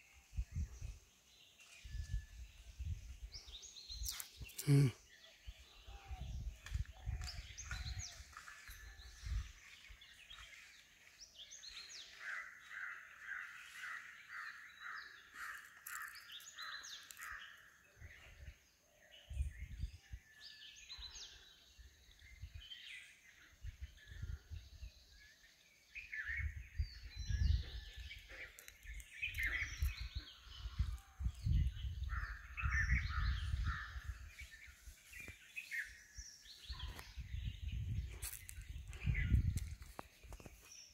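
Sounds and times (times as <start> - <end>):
birds calling: 3.3 - 18.6, 25.3 - 40.9.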